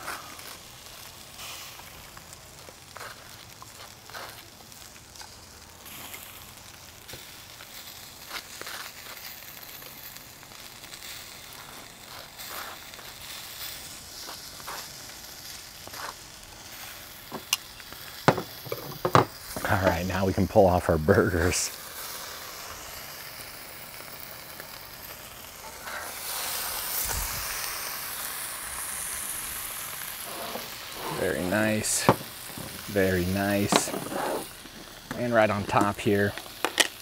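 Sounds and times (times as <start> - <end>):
burgers sizzling on grill: 0.0 - 37.0.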